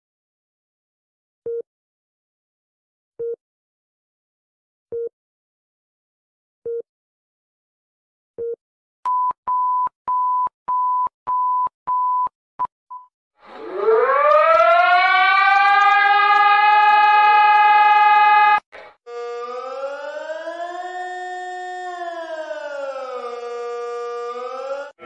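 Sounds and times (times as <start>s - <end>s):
electronic siren rising: 13.4s - 25.0s.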